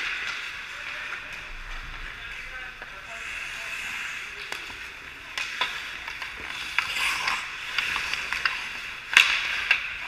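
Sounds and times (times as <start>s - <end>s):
sticks and puck clicking: 0.0s - 1.4s, 4.4s - 10.0s
skates scraping on ice: 0.0s - 10.0s.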